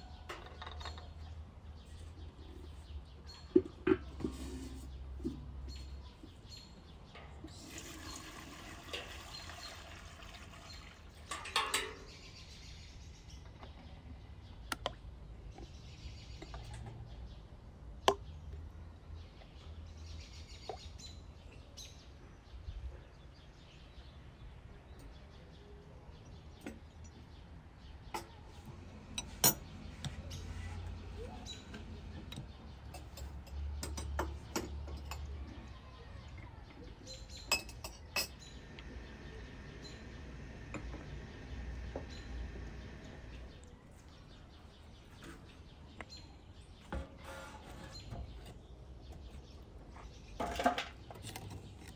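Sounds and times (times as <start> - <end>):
birds chirping: 0.0 - 51.9
water pouring into metal pot: 7.5 - 11.8
metal cookware clinking: 11.2 - 12.2.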